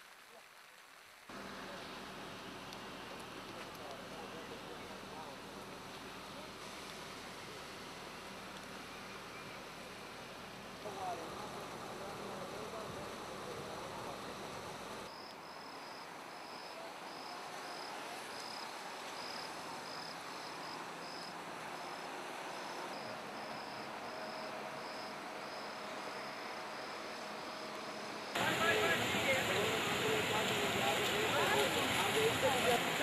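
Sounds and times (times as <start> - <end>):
background hiss: 0.0 - 33.0
insects chirping: 14.7 - 28.5.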